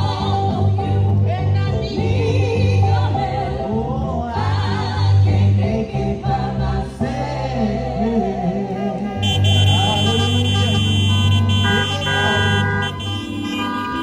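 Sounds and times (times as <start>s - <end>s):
people singing through microphones: 0.0s - 14.0s
electric keyboard chords: 9.1s - 14.0s.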